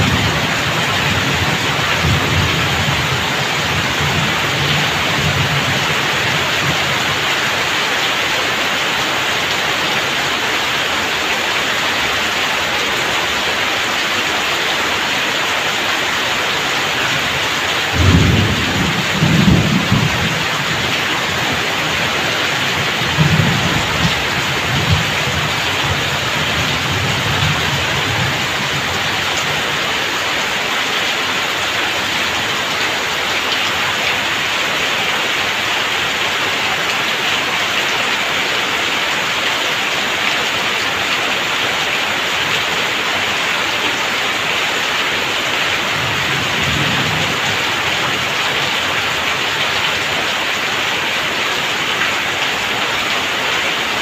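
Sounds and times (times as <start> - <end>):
heavy rain streaming off roof: 0.0 - 54.0
low thunder rumbling: 17.8 - 29.7.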